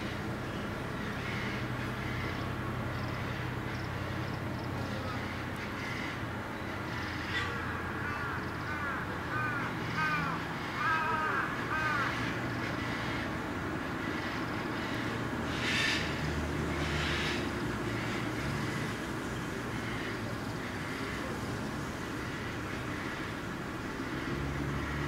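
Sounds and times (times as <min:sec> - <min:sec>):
crow cawing: 0:05.1 - 0:13.3, 0:22.1 - 0:23.4.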